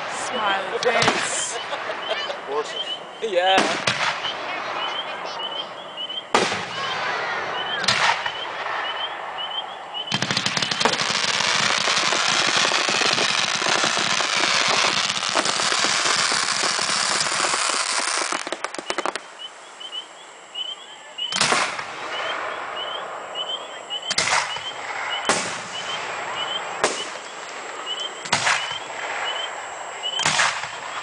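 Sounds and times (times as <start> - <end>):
rapid crackling of fireworks: 0.0 - 19.6, 21.3 - 31.0
scattered firework pops: 3.5 - 4.5, 7.8 - 9.1, 10.1 - 19.3, 21.3 - 22.3, 24.1 - 29.5, 30.2 - 31.0.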